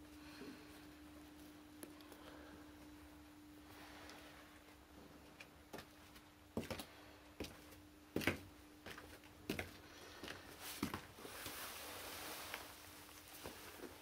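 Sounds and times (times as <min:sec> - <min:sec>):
faint steady hum: 0:00.0 - 0:14.0
boots on concrete floor: 0:05.3 - 0:14.0.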